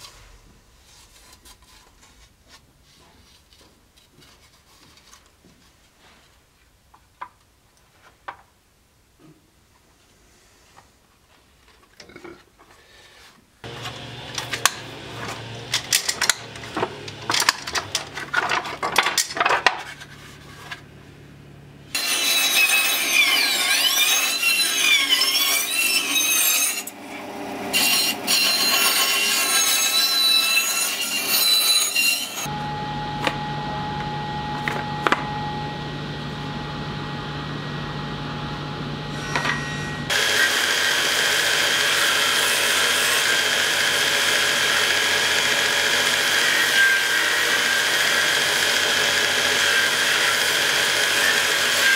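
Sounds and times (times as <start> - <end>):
bandsaw cutting wood: 13.6 - 18.9, 21.9 - 32.6, 39.1 - 51.9
electric hum: 13.7 - 19.3, 32.5 - 40.1
faint high tone: 32.5 - 40.1.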